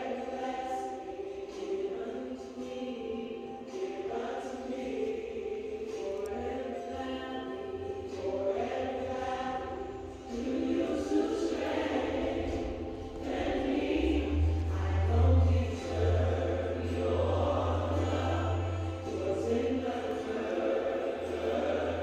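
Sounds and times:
choir singing gospel: 0.0s - 22.0s
deep bass: 12.8s - 19.0s.

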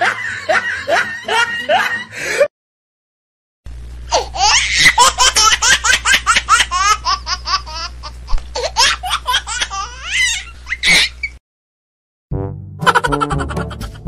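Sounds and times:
high-pitched laughter: 0.0s - 2.2s, 4.1s - 7.9s, 8.6s - 11.3s, 12.8s - 14.0s
low hum: 3.7s - 4.3s.

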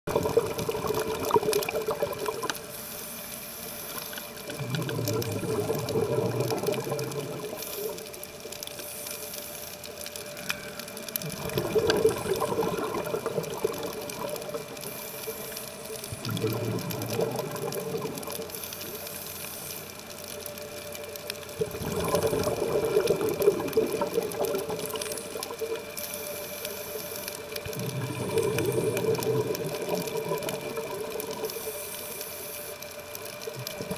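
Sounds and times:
bubbling of exhaled air: 0.1s - 2.8s, 4.0s - 8.7s, 10.2s - 19.2s, 21.5s - 26.0s, 27.4s - 32.0s, 33.0s - 33.9s
faint steady hum: 0.1s - 33.9s.

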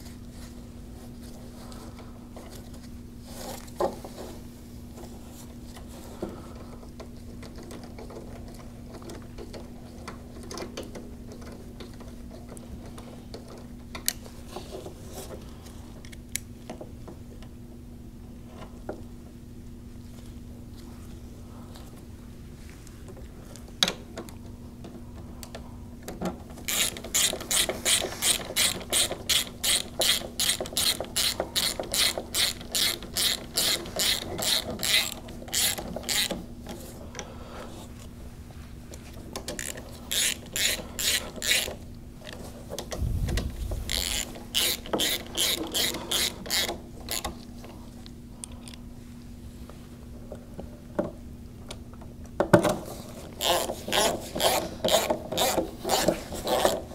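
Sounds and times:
socket ratchet clicking: 26.7s - 36.4s, 39.6s - 41.8s, 43.8s - 47.3s
short low thump: 42.9s - 43.9s.

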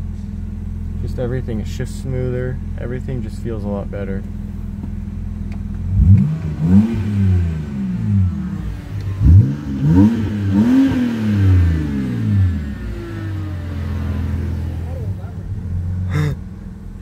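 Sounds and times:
car engine revving: 4.3s - 17.0s.

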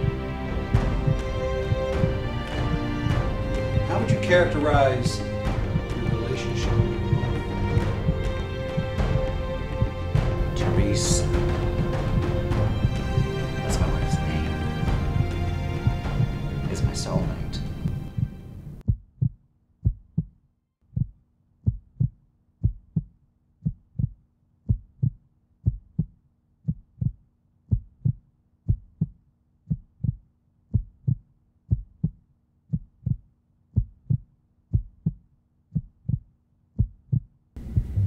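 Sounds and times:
heartbeat thumps: 0.0s - 38.0s
faint low hum: 37.6s - 38.0s.

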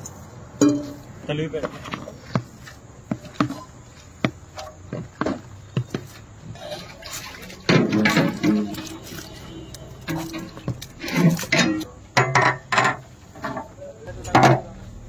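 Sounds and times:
metal bowls clattering against pot: 4.5s - 14.8s.

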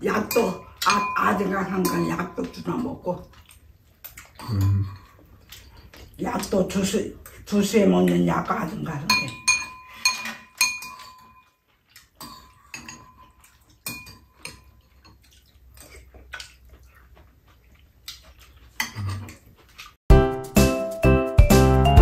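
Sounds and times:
utensils clinking against bowls: 0.0s - 3.3s, 4.2s - 6.6s, 8.9s - 11.6s, 12.2s - 15.2s.

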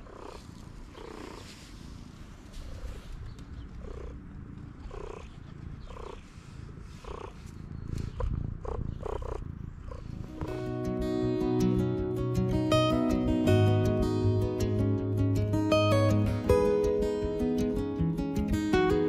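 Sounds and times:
low steady rumble: 0.0s - 11.8s.

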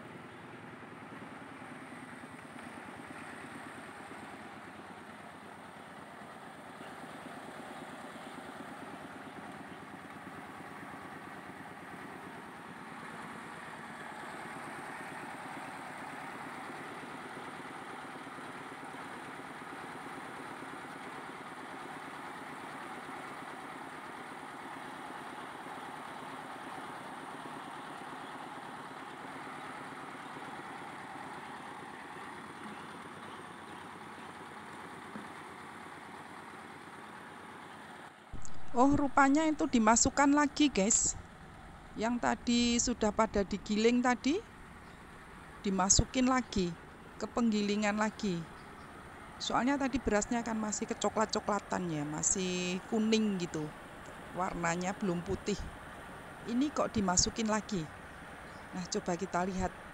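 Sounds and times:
rice mill machinery running: 0.0s - 39.4s.

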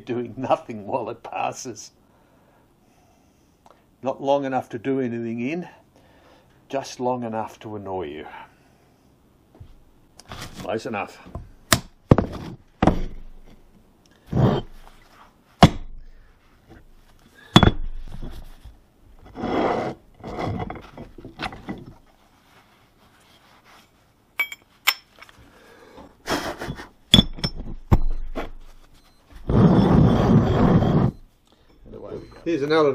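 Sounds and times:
metal clinks and knocks: 17.6s - 18.4s, 24.4s - 25.3s, 26.7s - 28.7s
rough scraping and rustling: 18.0s - 24.2s, 28.6s - 31.2s.

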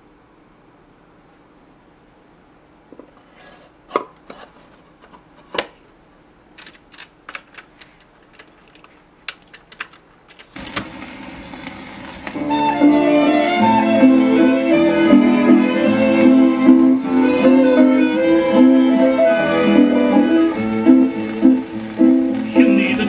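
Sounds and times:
record surface hiss: 0.0s - 23.0s.

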